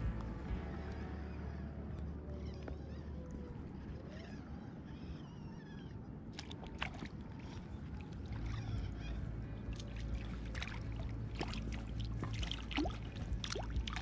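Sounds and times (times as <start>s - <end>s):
low steady rumble: 0.0s - 14.0s
water splashing: 6.4s - 14.0s.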